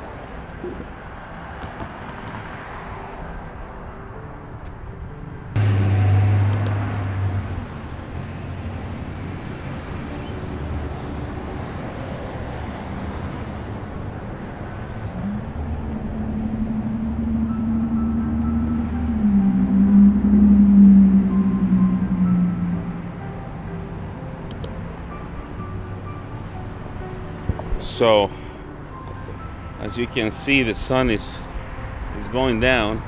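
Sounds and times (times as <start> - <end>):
street noise: 0.0 - 33.0
another engine tone rising: 5.5 - 27.2
vehicle engine running: 5.6 - 11.6, 13.4 - 24.2.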